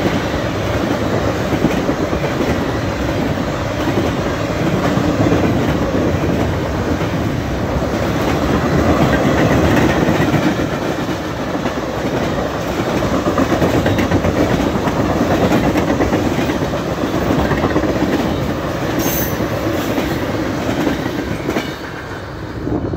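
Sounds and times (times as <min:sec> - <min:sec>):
freight train wheels rumbling: 0:00.0 - 0:22.9.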